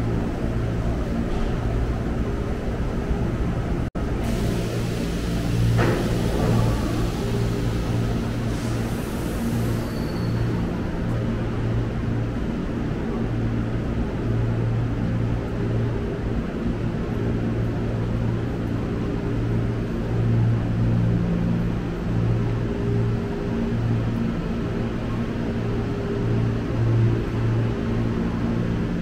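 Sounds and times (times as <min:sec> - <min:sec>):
fan-like hiss: 0:04.0 - 0:10.9.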